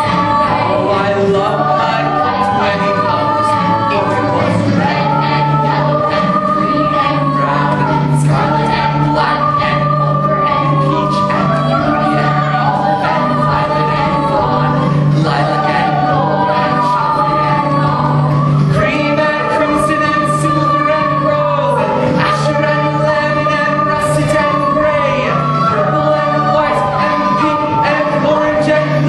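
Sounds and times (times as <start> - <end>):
choir singing with accompaniment: 0.0 - 29.0.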